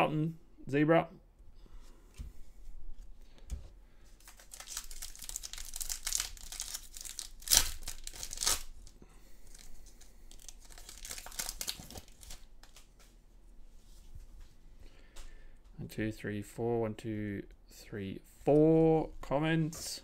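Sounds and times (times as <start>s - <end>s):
plastic wrapper tearing: 4.2s - 12.9s
plastic wrapper crinkling: 4.2s - 13.1s.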